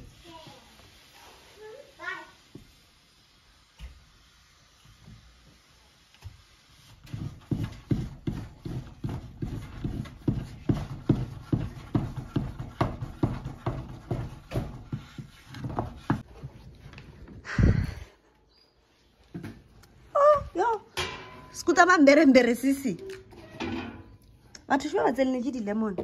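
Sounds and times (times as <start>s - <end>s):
spoon knocking and squelching porridge: 7.0s - 16.4s.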